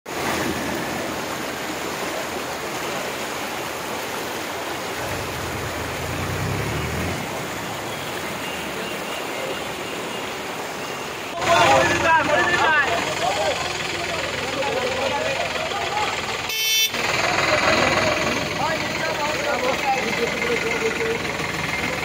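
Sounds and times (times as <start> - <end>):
floodwater rushing: 0.0 - 22.0.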